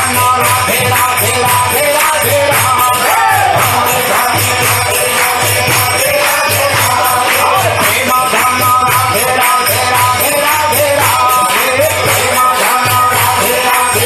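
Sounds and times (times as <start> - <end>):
hand cymbals jingling: 0.0 - 14.0
voices chanting: 3.0 - 4.6.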